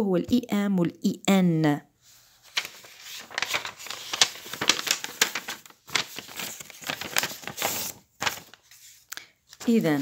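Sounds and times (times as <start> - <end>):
notebook pages rustling: 2.0 - 10.0.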